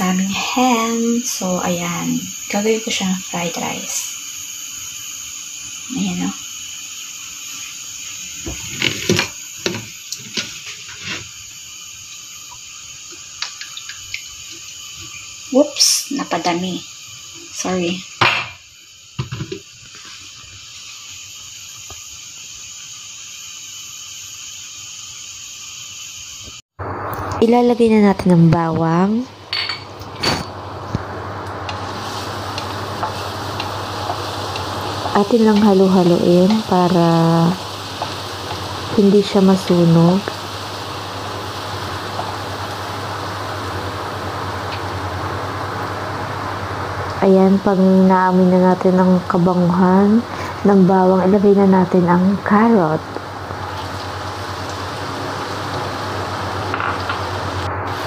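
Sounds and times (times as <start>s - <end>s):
garlic sizzling in hot oil: 0.0s - 58.0s
gas stove hiss: 0.0s - 58.0s
frying pan knocks and clatters: 19.2s - 19.6s.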